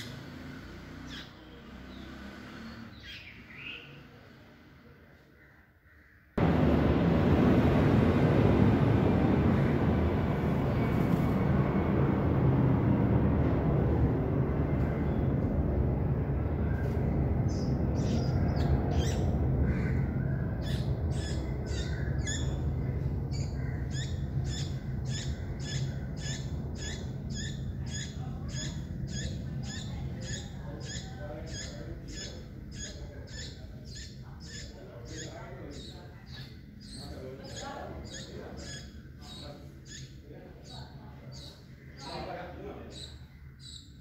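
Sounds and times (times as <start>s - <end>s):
low rumble: 6.4s - 30.7s.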